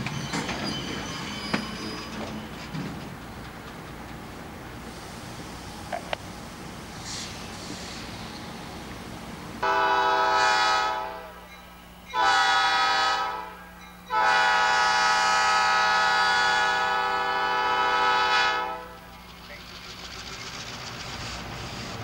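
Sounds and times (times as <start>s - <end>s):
diesel locomotive horn blasts: 9.6s - 11.5s, 12.1s - 19.1s.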